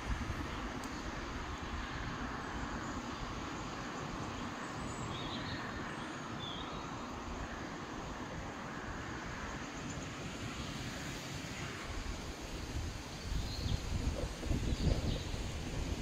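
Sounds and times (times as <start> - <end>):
wind on microphone: 0.0 - 3.5, 9.0 - 16.0.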